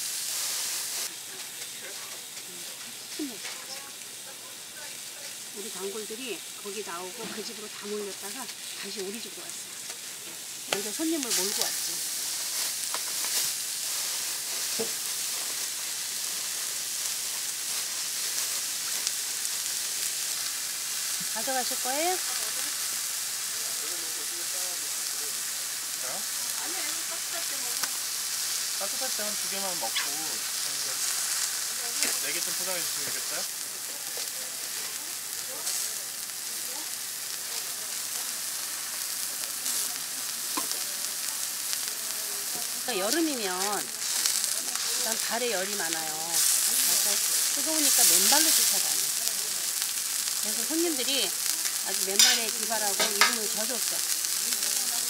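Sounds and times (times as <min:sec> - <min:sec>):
food sizzling on griddle: 0:00.0 - 0:55.0.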